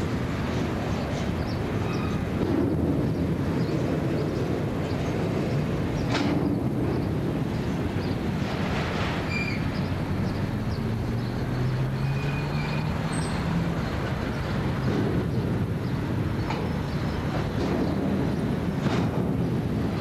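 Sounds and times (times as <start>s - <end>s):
train wagons rumbling on rails: 0.0s - 20.0s
high wheel squeals: 1.8s - 2.3s, 9.2s - 9.8s, 11.9s - 13.5s.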